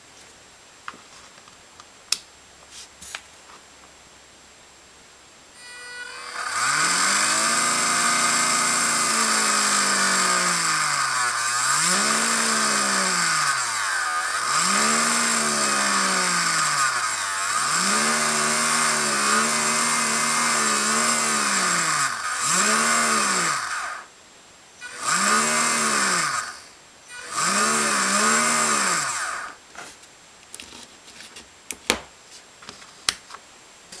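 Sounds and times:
small electric motors whirring: 5.6 - 24.1, 24.8 - 29.6.

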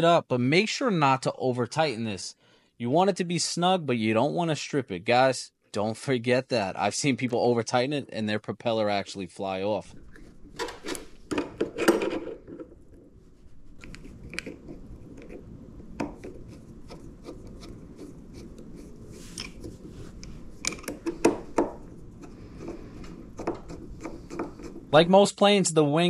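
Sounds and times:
handling clicks and taps: 19.4 - 24.8.

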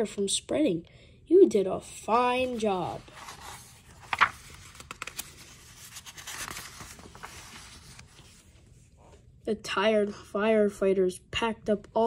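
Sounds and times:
paper rustling: 2.1 - 9.0
book page turning: 2.1 - 9.2.

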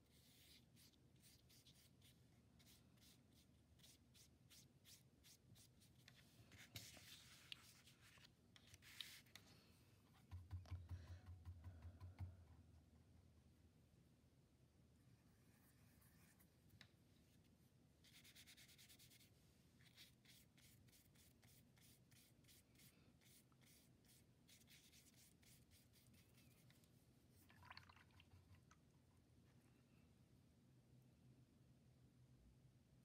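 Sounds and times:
paintbrush strokes on paper: 0.0 - 9.4, 15.2 - 27.5.

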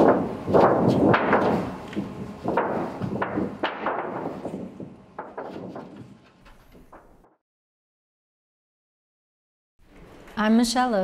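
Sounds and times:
metal sheet crackling and popping: 0.0 - 7.4.

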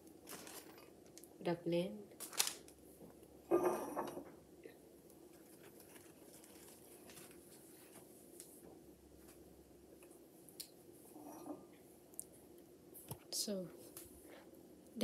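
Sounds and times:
paper towel rustling: 0.2 - 0.9, 5.3 - 8.6.

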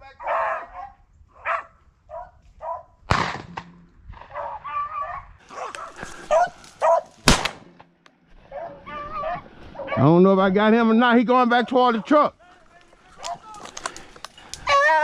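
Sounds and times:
dogs barking and baying: 0.2 - 2.9, 4.3 - 7.2, 8.4 - 10.2
gunshots cracking: 3.1 - 4.4, 7.2 - 7.9.

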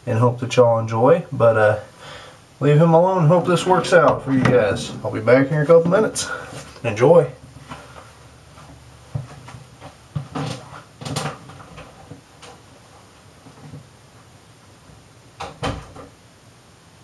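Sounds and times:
door knocks and clunks: 3.6 - 5.2.

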